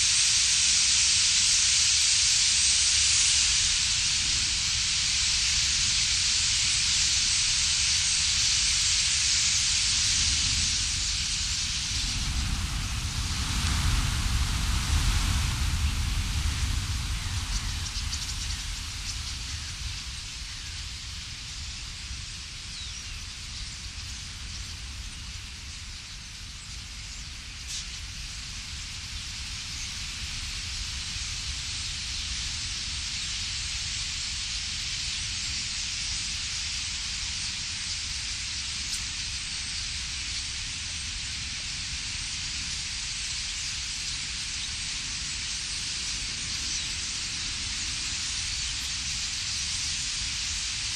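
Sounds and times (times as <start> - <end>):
starling flock wings and chatter: 0.0 - 50.9.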